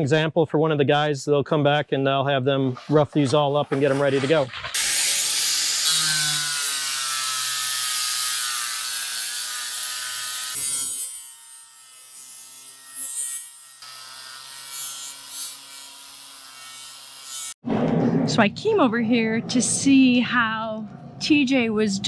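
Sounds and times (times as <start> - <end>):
angle grinder motor whining: 4.8 - 17.5.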